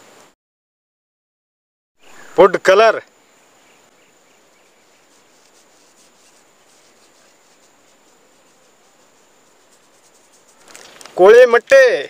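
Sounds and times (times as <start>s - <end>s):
faint hiss: 0.0s - 0.4s, 2.0s - 12.0s.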